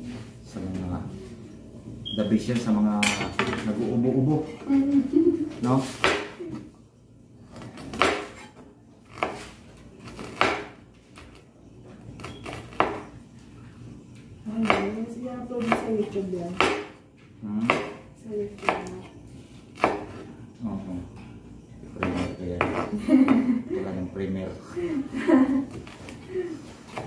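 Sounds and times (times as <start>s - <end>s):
knife chopping on cutting board: 5.8s - 6.4s, 7.6s - 11.3s, 12.2s - 13.1s, 14.6s - 15.0s, 15.6s - 17.0s, 17.6s - 18.0s, 19.8s - 20.2s.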